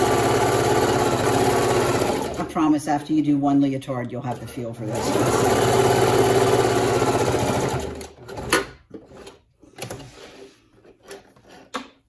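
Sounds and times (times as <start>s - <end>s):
sewing machine running: 0.0s - 2.6s, 4.3s - 8.4s.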